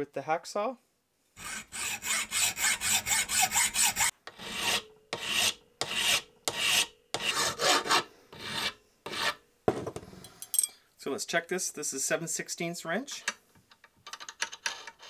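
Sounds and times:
metal file rasping: 0:01.4 - 0:09.4.

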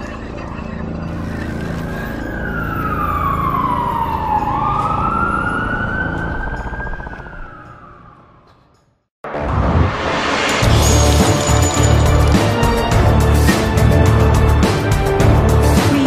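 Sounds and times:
siren wailing: 0:01.3 - 0:08.5
low rumble: 0:09.3 - 0:14.6.

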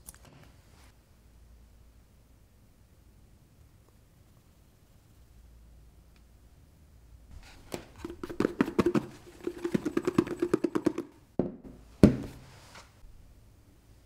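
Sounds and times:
food rattling in shaken bowl: 0:07.8 - 0:11.2
bowl knocking on table: 0:08.0 - 0:12.4.

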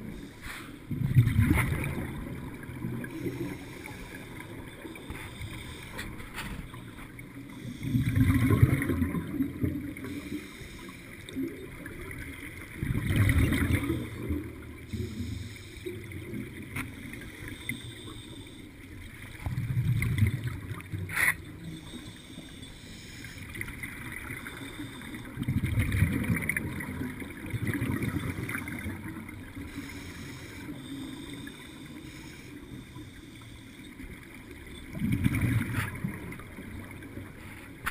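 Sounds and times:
steady hiss: 0:00.0 - 0:00.9, 0:10.0 - 0:11.3, 0:14.8 - 0:19.3, 0:21.6 - 0:25.4, 0:29.6 - 0:34.3
underwater bubbles burbling: 0:00.9 - 0:18.2, 0:18.8 - 0:22.5, 0:23.4 - 0:31.9, 0:33.9 - 0:37.9.

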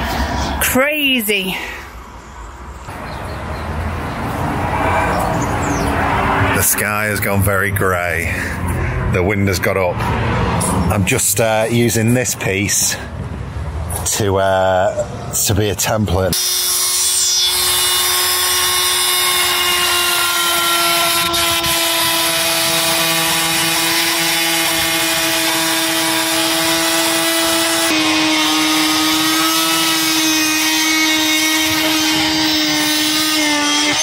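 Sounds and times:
oscillating multi-tool cutting plywood: 0:16.3 - 0:34.0.

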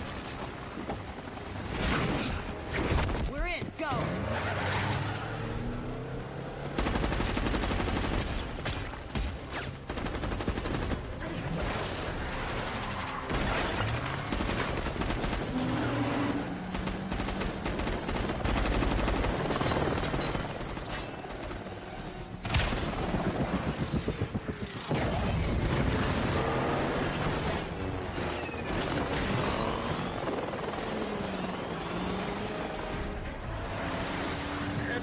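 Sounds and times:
dramatic music score: 0:00.0 - 0:35.0
helicopter noise: 0:09.7 - 0:35.0.

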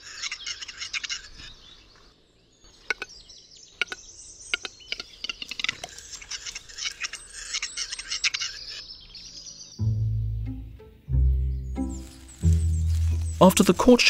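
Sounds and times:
bird scratchy grinding song: 0:11.4 - 0:14.0.

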